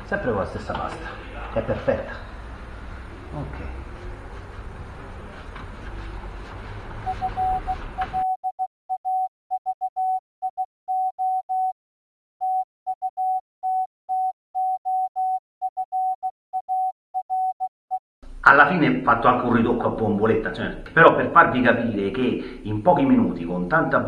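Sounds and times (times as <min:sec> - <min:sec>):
rough noisy background: 0:00.0 - 0:08.2
morse code beeps: 0:07.0 - 0:11.8, 0:12.4 - 0:17.7.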